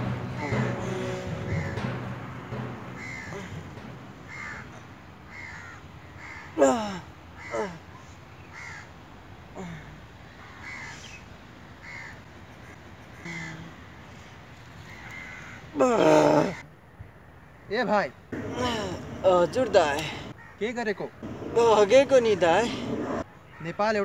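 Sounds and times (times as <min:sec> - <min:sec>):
crows cawing: 0:00.3 - 0:02.0, 0:02.9 - 0:06.6, 0:07.4 - 0:08.9, 0:10.3 - 0:11.2, 0:11.8 - 0:12.3, 0:14.8 - 0:15.8, 0:18.4 - 0:23.9.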